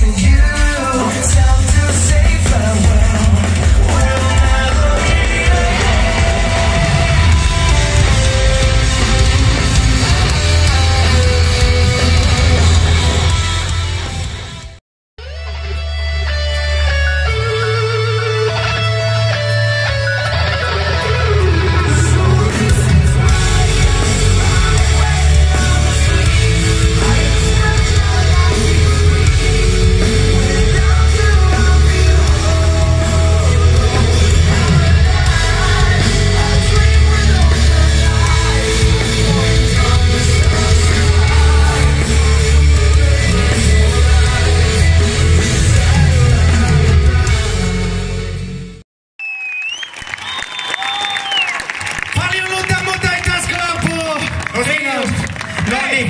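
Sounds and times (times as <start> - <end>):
man singing: 0.0 - 12.7, 21.3 - 47.8
heavy metal band playing: 0.0 - 48.8, 52.2 - 56.0.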